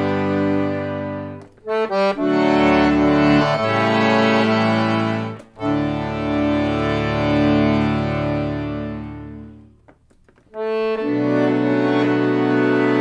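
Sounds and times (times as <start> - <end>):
solo accordion playing folk tune: 0.0 - 13.0.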